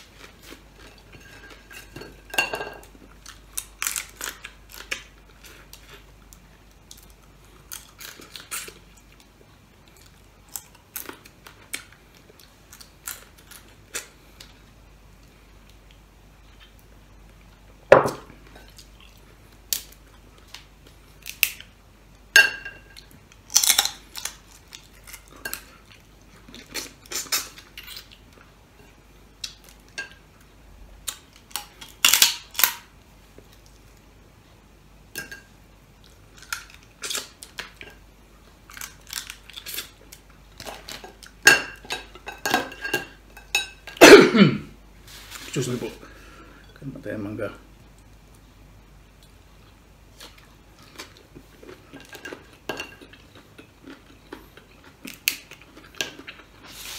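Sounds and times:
crab shells cracking: 23.4s - 25.3s.

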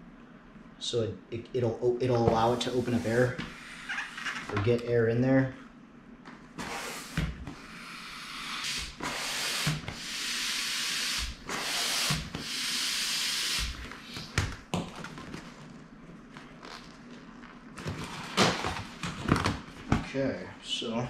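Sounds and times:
hand pump air rushes: 6.6s - 14.3s.

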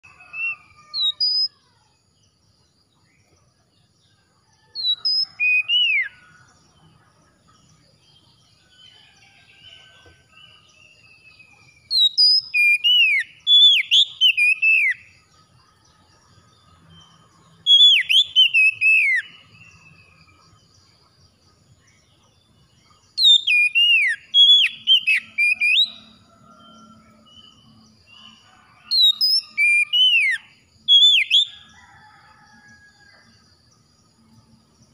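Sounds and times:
bird singing whistled phrases: 0.2s - 1.6s, 11.1s - 15.0s, 17.7s - 19.3s, 23.2s - 26.2s, 28.9s - 31.6s.

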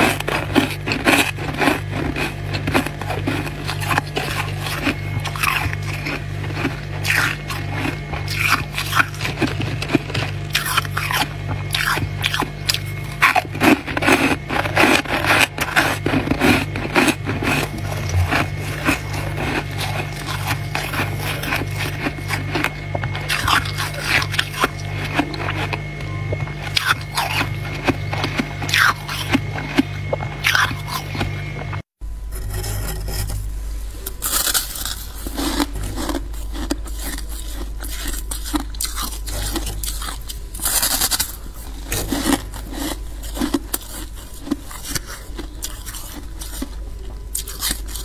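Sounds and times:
crisp crunching of frost: 0.0s - 31.6s, 32.4s - 48.0s
music with low beat: 25.9s - 26.6s.

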